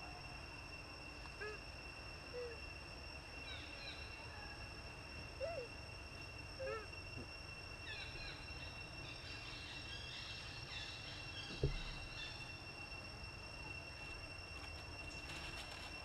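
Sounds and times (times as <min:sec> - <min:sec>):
high-pitched insect drone: 0:00.0 - 0:16.0
dull thump: 0:11.4 - 0:12.3.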